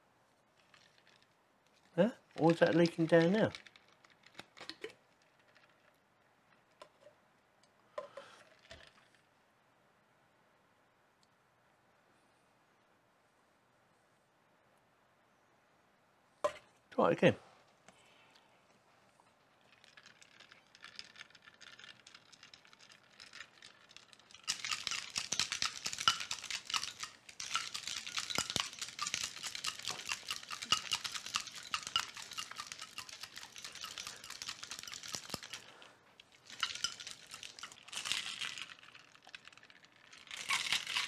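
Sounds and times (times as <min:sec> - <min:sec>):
ice rattling in cocktail shaker: 0:00.6 - 0:06.0, 0:08.1 - 0:09.2, 0:19.4 - 0:41.0.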